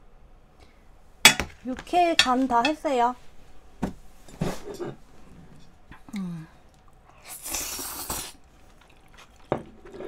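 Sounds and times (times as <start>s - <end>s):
person humming: 6.1s - 6.5s
slurping food off chopsticks: 7.1s - 10.0s.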